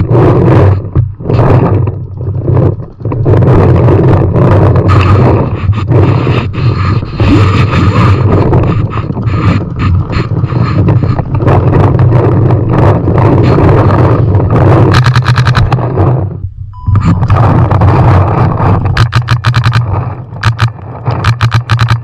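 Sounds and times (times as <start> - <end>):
wind rumble: 0.0 - 22.0
camera handling noise: 14.9 - 15.8, 18.8 - 22.0.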